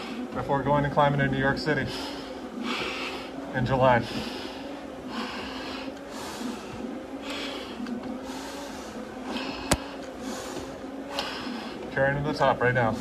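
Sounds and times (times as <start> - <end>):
hard breathing through a mask: 1.7 - 11.9.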